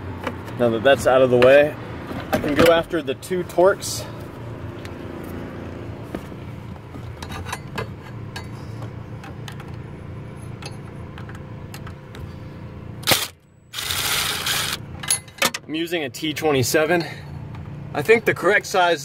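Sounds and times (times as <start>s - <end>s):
low hum: 4.0s - 15.4s.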